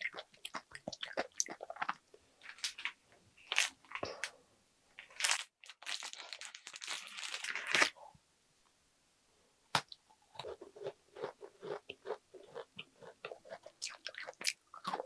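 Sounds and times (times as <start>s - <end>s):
crunching and chewing: 0.0s - 4.0s, 10.3s - 15.0s
plastic wrapper crinkling: 5.0s - 7.9s.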